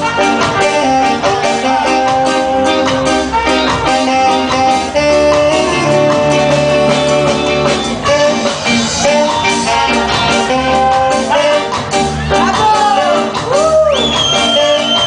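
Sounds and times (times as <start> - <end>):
held horn notes: 0.0 - 11.9
live reggae band: 0.0 - 15.0.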